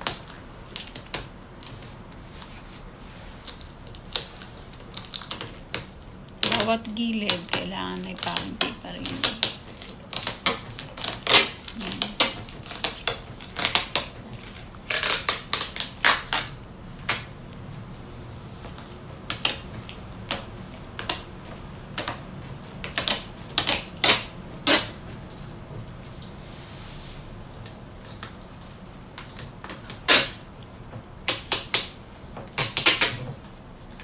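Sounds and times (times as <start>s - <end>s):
packing tape ripping off roll: 0.0s - 2.8s, 3.4s - 6.7s, 7.3s - 17.3s, 19.2s - 25.4s, 29.2s - 30.5s, 31.2s - 34.0s.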